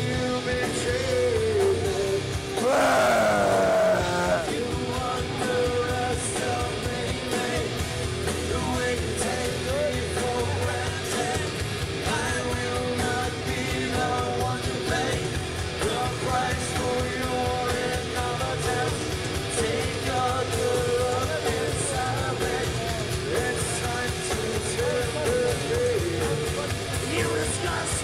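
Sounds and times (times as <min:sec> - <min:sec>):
person singing: 0:00.0 - 0:07.7
bass guitar: 0:00.0 - 0:28.0
drums: 0:00.0 - 0:28.0
electric guitar: 0:00.0 - 0:28.0.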